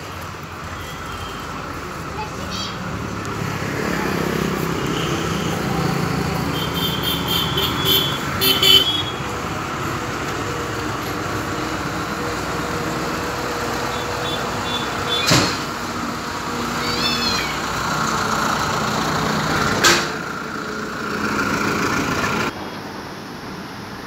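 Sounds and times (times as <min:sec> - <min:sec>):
diesel generator humming: 0:01.6 - 0:22.5.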